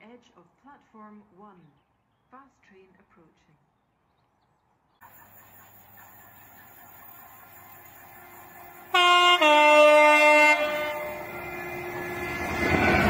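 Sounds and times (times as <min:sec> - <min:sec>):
train rumble approaching: 0:05.0 - 0:13.0
two-tone locomotive horn: 0:08.9 - 0:13.0.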